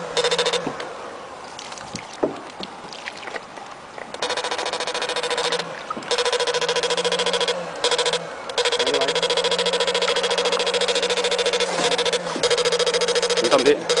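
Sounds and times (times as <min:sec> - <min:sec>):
rapid pulsing electrical buzz: 0:04.2 - 0:14.0.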